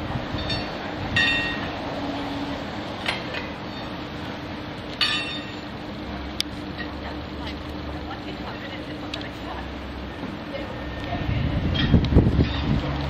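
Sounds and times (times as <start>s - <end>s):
metal bar clinking on rails: 5.0s - 5.7s.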